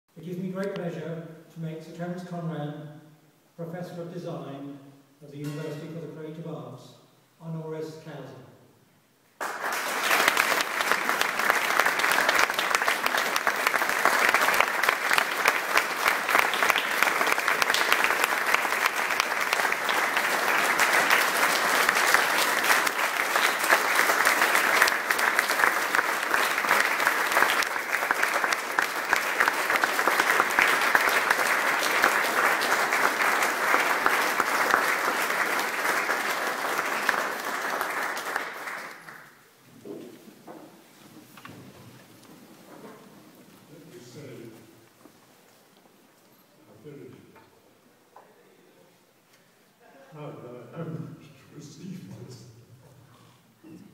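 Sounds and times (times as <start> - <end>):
audience applauding: 9.4 - 39.6.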